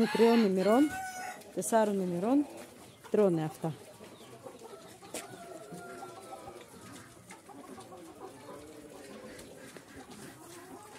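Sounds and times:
chickens calling: 0.0s - 10.9s.

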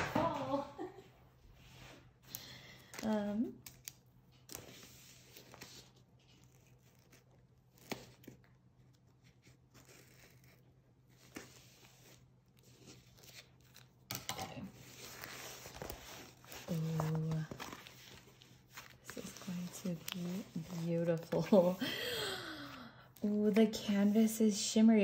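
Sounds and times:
scissors snipping paper: 3.0s - 4.8s
paper and plastic rustling: 4.3s - 21.9s
paper tearing: 4.5s - 13.9s.

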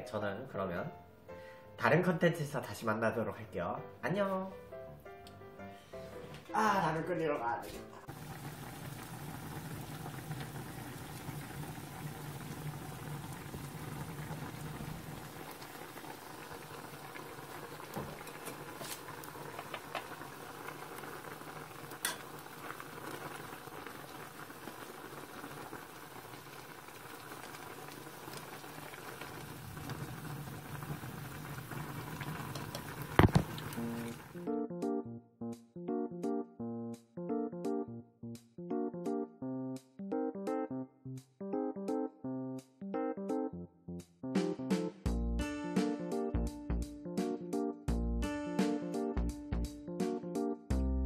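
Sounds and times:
pot boiling and bubbling: 8.0s - 34.4s.

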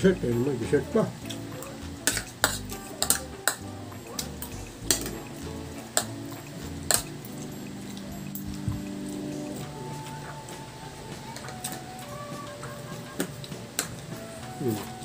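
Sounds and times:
cutlery clinking on ceramic plate: 2.0s - 5.2s, 6.8s - 7.1s.

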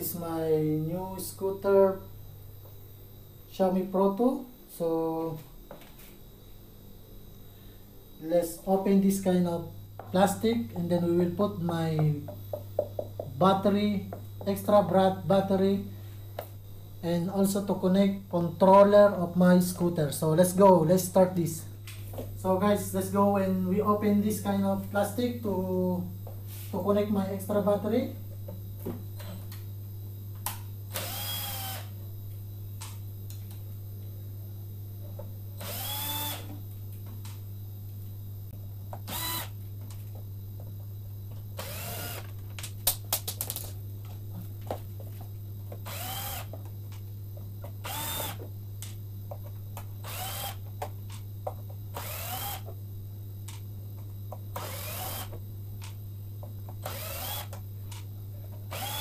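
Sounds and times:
electric screwdriver whirring: 30.9s - 31.9s, 35.6s - 36.5s, 39.1s - 39.6s, 41.6s - 42.3s, 45.8s - 46.6s, 47.8s - 48.4s, 50.0s - 50.6s, 52.0s - 52.7s, 54.6s - 55.3s, 56.8s - 57.6s, 58.7s - 59.0s.

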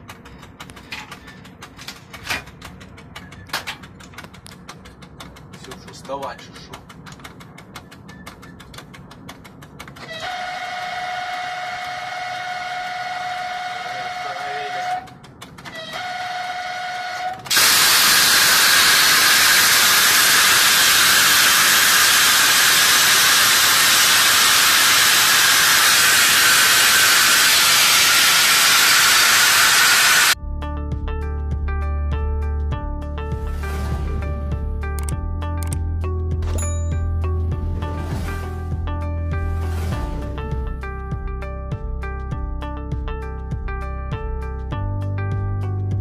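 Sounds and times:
train horn blasts: 10.0s - 20.3s.

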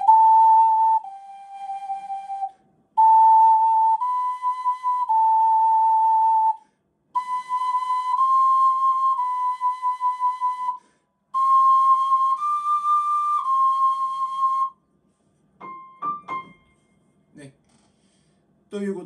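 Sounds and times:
ocarina playing held notes: 0.0s - 6.6s, 11.4s - 14.7s.

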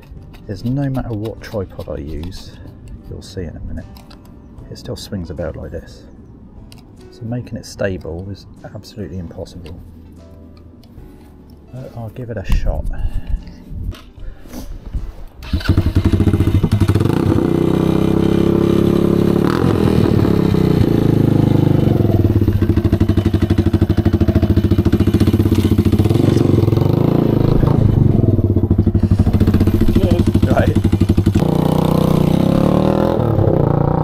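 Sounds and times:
engine starting and idling: 15.4s - 19.3s.

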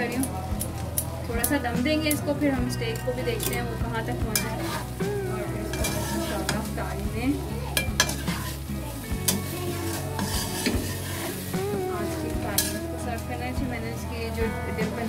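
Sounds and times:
food sizzling in a pan: 0.0s - 15.0s
utensil stirring and scraping: 4.3s - 13.3s
utensil clicking on pan: 5.7s - 6.8s, 7.7s - 8.6s, 9.2s - 11.5s, 12.5s - 12.8s.

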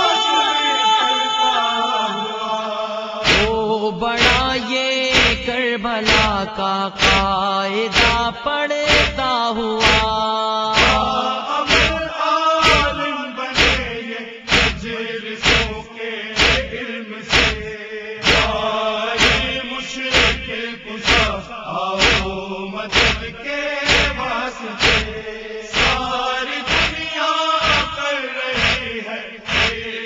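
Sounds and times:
men chanting slow melody: 0.0s - 30.0s
rhythmic chest-beating thumps: 3.2s - 30.0s.

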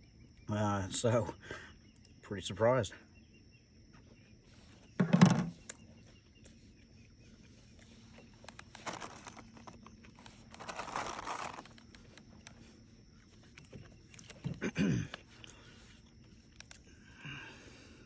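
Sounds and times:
paper napkin rustling and crinkling: 7.6s - 12.5s.

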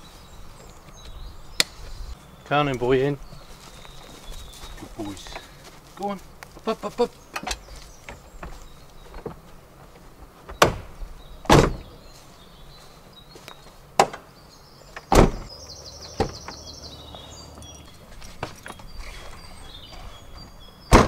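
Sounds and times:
car doors shutting: 11.5s - 11.9s, 15.0s - 17.8s
high chirping trill: 15.5s - 20.8s.

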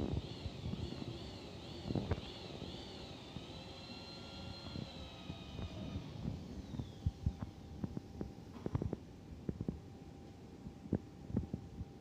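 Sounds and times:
hydraulic pump motor whining: 0.0s - 7.0s.

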